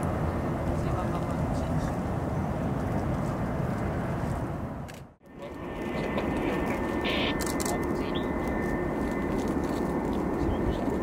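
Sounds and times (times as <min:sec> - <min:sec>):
jet engines rumbling: 0:00.0 - 0:11.0
high jet whine: 0:05.2 - 0:11.0.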